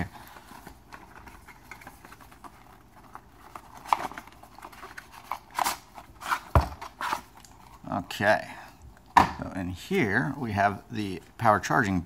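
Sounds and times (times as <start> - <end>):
cardboard rustling and scraping: 0.0 - 7.8.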